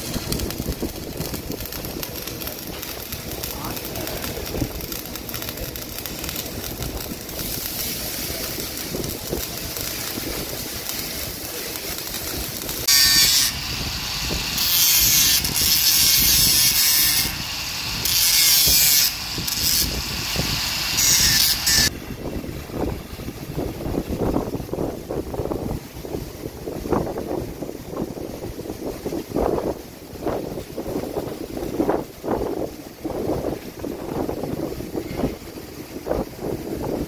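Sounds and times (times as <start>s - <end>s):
angle grinder grinding metal: 0.0s - 21.9s.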